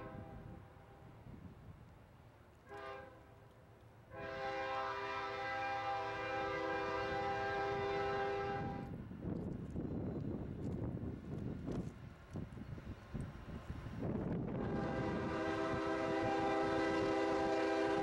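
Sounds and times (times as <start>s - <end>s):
locomotive air horn blasts: 0.0s - 0.5s, 2.7s - 3.2s, 4.1s - 8.9s, 14.5s - 18.0s.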